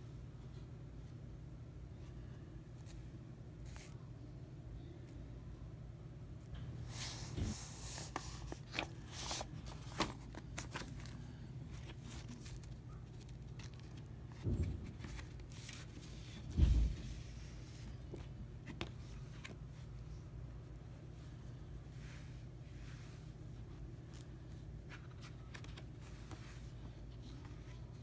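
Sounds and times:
steady low hum: 0.0 - 28.0
cardboard sleeve rustling: 6.9 - 20.1.

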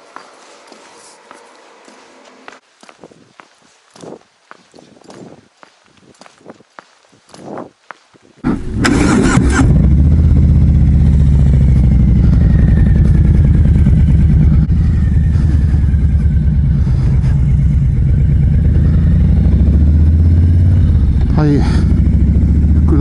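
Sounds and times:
motorcycle engine starting and running: 8.4 - 23.0.

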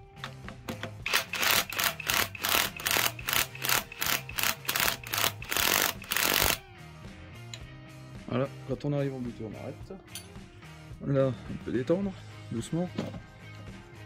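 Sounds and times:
ratchet wrench clicking: 1.0 - 6.6.

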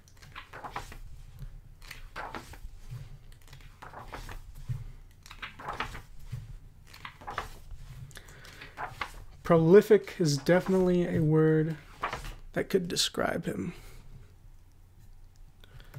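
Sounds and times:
book pages turning: 0.0 - 12.5.

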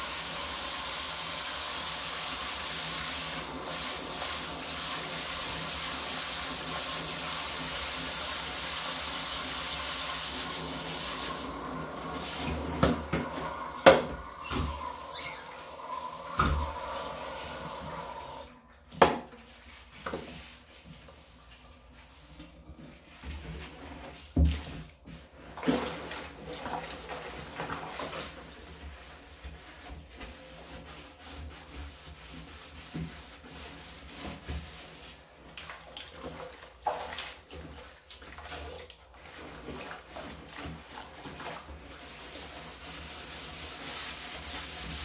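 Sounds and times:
sponge scrubbing plastic can: 0.0 - 45.0
water hissing: 12.1 - 18.5.

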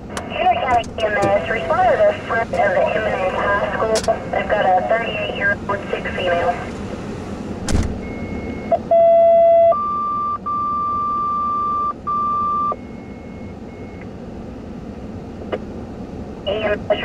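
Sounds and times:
two-tone radio paging tones: 8.0 - 12.8.

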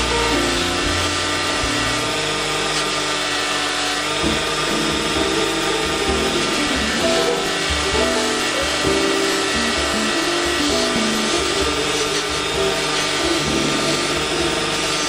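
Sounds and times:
buffing wheel hissing on metal: 0.0 - 15.0
background music with bass line: 4.2 - 15.0.

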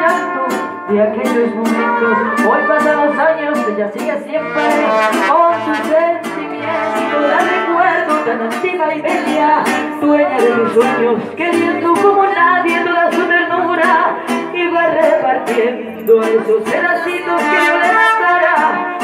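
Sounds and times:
strummed guitars: 0.0 - 19.0
woman singing into microphone: 0.0 - 19.0
trumpets playing: 1.8 - 3.8, 4.4 - 8.8, 17.2 - 19.0.

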